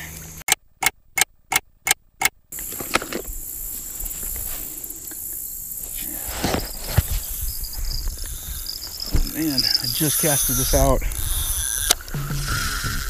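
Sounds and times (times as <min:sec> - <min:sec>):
crickets and insects chirring: 0:02.5 - 0:13.0.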